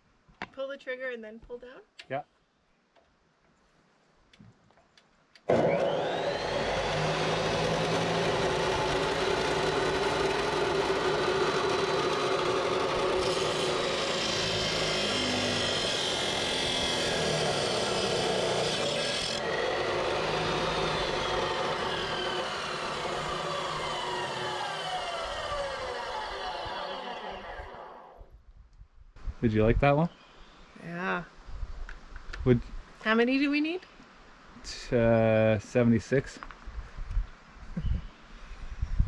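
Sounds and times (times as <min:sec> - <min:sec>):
chop saw motor whining: 0:05.4 - 0:28.3
abrasive wheel grinding steel: 0:05.5 - 0:28.2.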